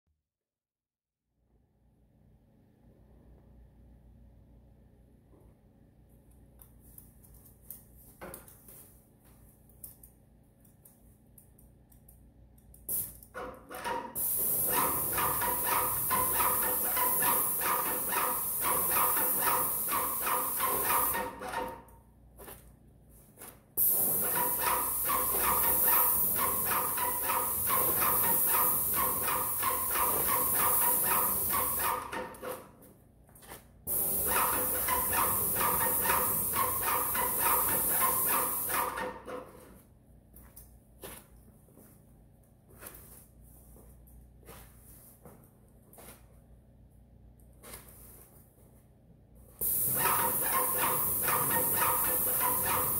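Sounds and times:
paint spray gun hissing: 14.2s - 21.4s, 23.8s - 32.1s, 33.9s - 39.0s, 49.6s - 52.9s
sprayer pump pulsing: 14.2s - 21.5s, 23.8s - 32.2s, 33.9s - 39.1s, 49.6s - 52.9s.

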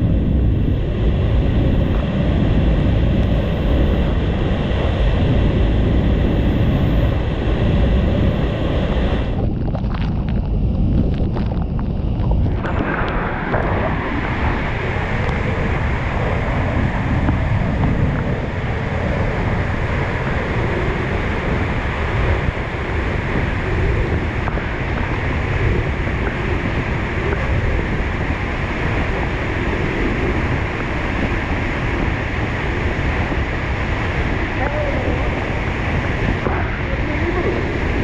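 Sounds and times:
wind buffeting microphone: 0.0s - 38.0s.

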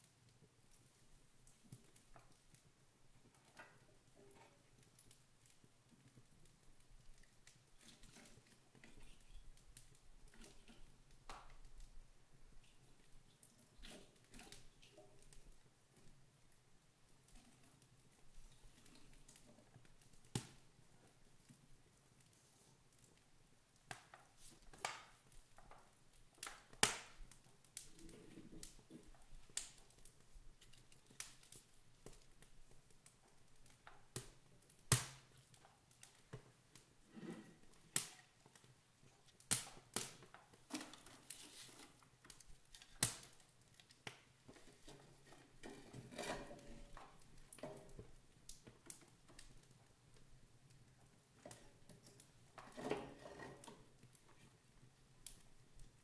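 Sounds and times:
sharp pops and snaps of fire: 0.0s - 56.0s
wood fire crackling: 0.0s - 56.0s
logs knocking and rustling: 52.6s - 54.0s.

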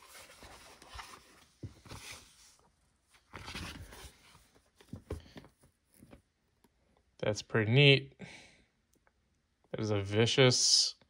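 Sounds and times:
cardboard packaging rustling: 0.0s - 6.2s.

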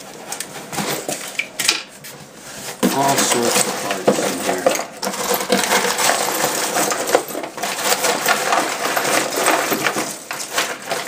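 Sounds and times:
small parts rattling in a box: 2.8s - 11.0s.

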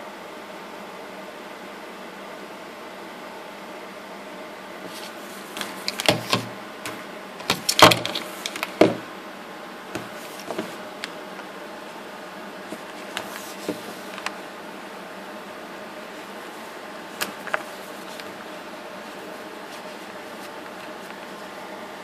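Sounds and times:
power adapter clicks and knocks: 5.6s - 9.1s.

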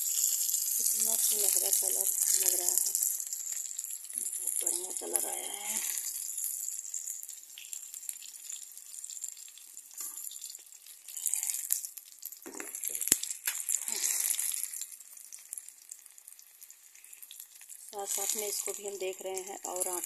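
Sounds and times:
peppers sizzling in oil: 0.0s - 20.0s.

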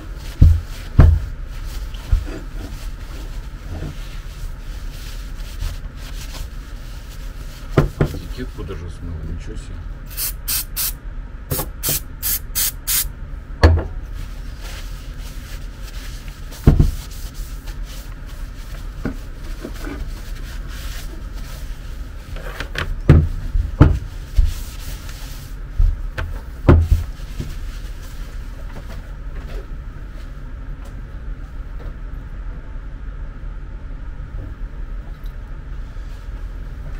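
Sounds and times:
aerosol spray bursts: 10.1s - 13.1s.

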